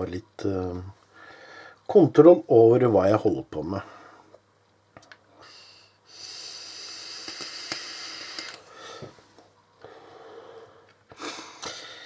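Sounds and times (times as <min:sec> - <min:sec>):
e-cigarette sizzling hiss: 0:05.5 - 0:09.1.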